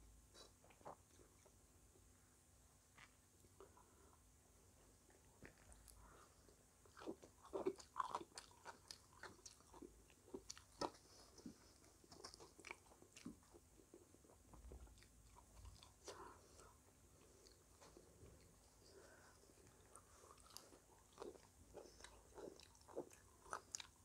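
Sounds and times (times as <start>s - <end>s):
crunching and chewing pastry: 5.0s - 24.0s.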